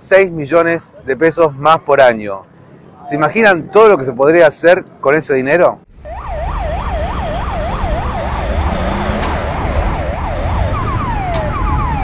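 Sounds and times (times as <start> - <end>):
low traffic rumble: 0.0 - 12.0
police siren yelping: 6.0 - 12.0.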